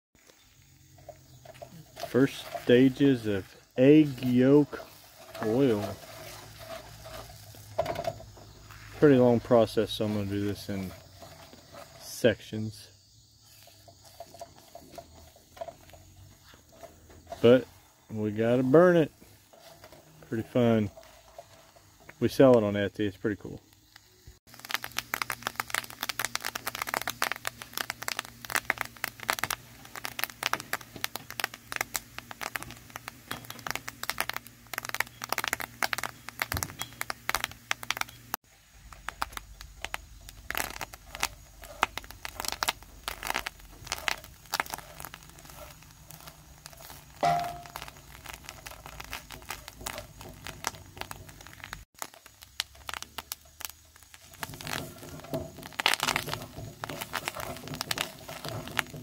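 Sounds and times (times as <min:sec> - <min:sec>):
egg yolks sizzling in skillet: 0:00.2 - 0:22.7, 0:23.6 - 0:59.0.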